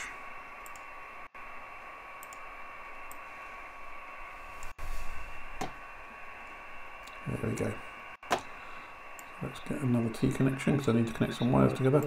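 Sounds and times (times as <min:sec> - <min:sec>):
computer mouse clicks: 0:00.6 - 0:00.9, 0:02.2 - 0:02.4.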